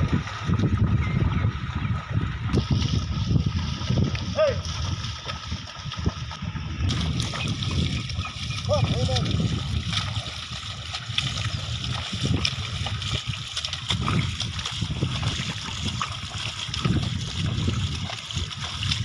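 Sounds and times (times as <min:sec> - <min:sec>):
hooves and plough splashing in mud: 0:00.0 - 0:19.0.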